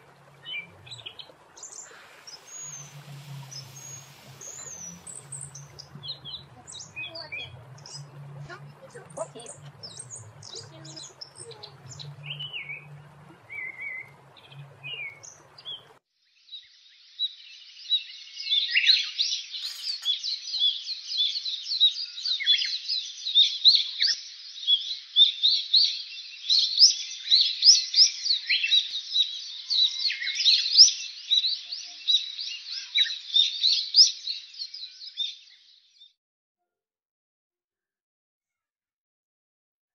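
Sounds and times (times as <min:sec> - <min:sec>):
small birds chirping: 0:00.0 - 0:16.0, 0:17.3 - 0:23.3.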